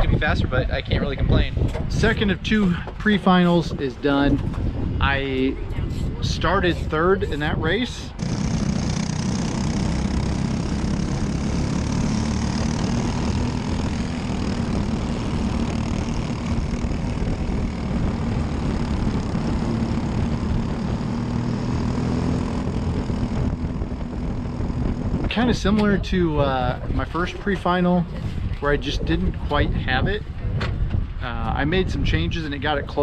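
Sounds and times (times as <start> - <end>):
kart engine running: 8.1 - 26.0.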